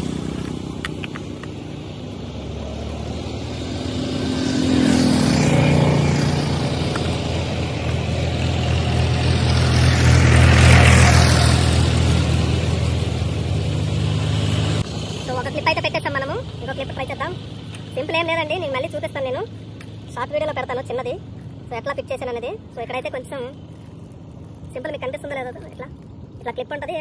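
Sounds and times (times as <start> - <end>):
vehicles passing on road: 0.0 - 27.0.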